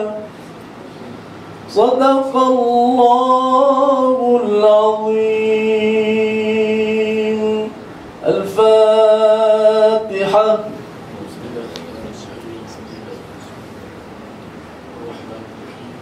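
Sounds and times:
man chanting into a microphone: 0.0s - 0.4s, 1.7s - 10.9s.

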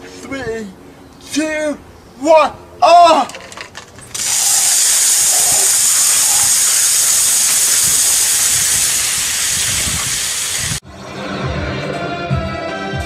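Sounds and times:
hiss of foam spraying: 4.2s - 10.8s.

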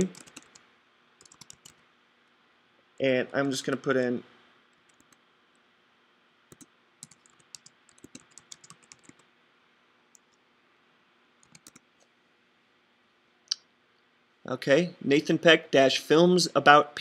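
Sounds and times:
computer keyboard typing: 0.0s - 0.6s, 1.2s - 1.8s, 4.7s - 5.2s, 6.5s - 9.3s, 11.4s - 11.9s.

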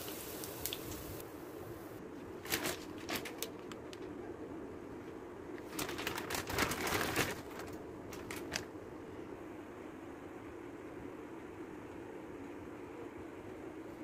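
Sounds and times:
plastic bag crinkling: 2.4s - 3.8s, 5.6s - 8.7s.

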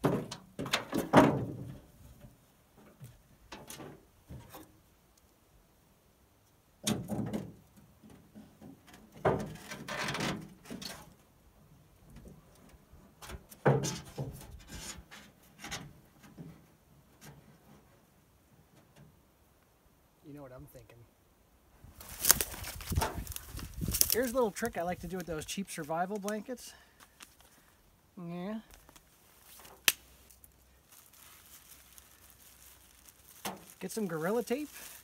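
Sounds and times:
gear clunking in metal canoe: 0.0s - 4.7s, 6.8s - 11.2s, 13.1s - 17.9s.

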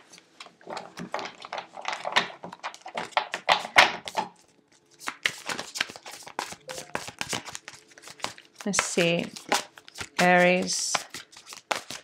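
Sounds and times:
cards being shuffled: 2.7s - 12.0s.

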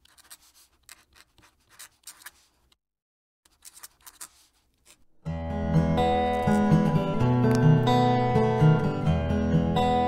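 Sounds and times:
pen nib scratching on paper: 0.0s - 2.7s, 3.5s - 5.0s.

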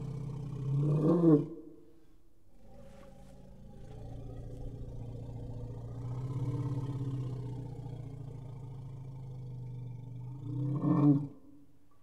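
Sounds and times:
elephant growling: 2.5s - 11.4s.

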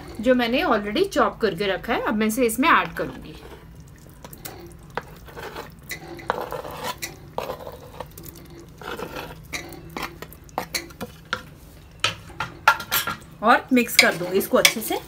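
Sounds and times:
metal spoon scraping wooden board: 4.5s - 10.9s, 14.0s - 15.0s
spoon knocking pot rim: 14.0s - 15.0s.

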